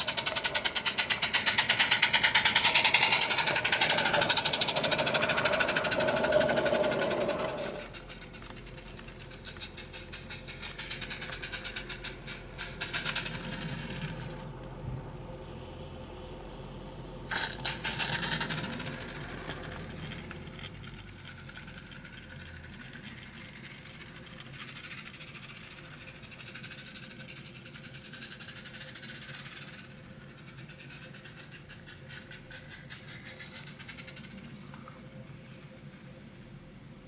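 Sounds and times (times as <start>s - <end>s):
loud burst of noise: 0.0s - 7.9s
steam hissing: 0.0s - 8.0s
wheels rattling on rails: 0.0s - 15.3s, 17.3s - 34.6s.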